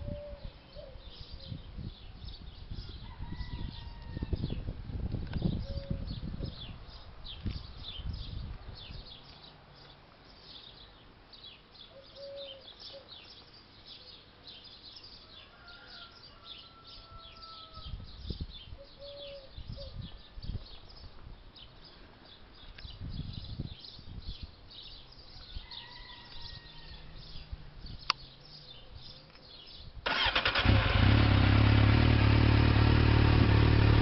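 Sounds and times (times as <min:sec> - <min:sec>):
small birds chirping: 0:05.3 - 0:30.6.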